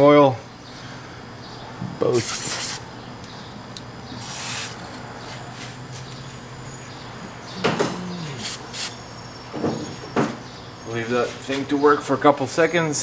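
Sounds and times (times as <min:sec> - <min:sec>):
aerosol can spraying: 0:02.2 - 0:02.8, 0:04.2 - 0:04.8.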